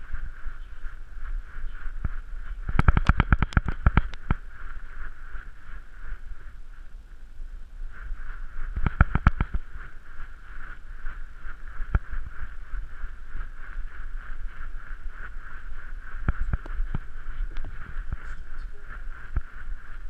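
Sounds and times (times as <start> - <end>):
steady high-pitched hum: 0.0 - 20.0.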